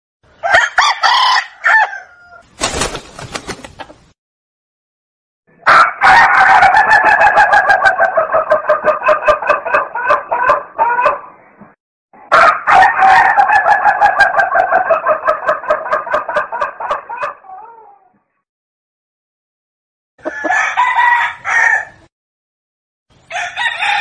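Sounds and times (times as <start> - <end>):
chickens clucking: 6.8 - 11.7, 13.6 - 17.6.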